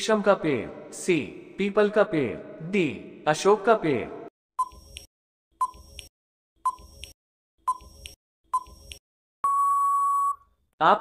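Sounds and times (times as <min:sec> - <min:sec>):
short sharp beeps: 0:09.4 - 0:10.5.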